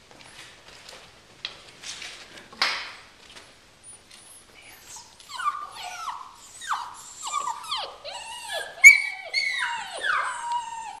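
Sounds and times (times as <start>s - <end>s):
puppies whining and crying: 3.8s - 11.0s.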